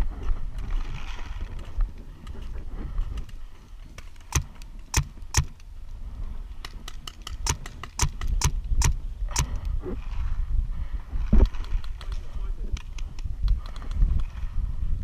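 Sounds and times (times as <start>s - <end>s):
wind on microphone: 0.0s - 3.6s, 4.4s - 15.0s
paintball markers firing: 4.0s - 5.7s, 6.6s - 9.7s.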